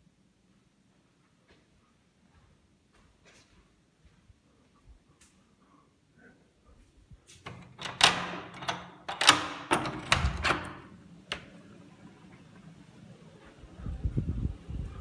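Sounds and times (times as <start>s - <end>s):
door latch and knob clicking: 7.5s - 10.9s.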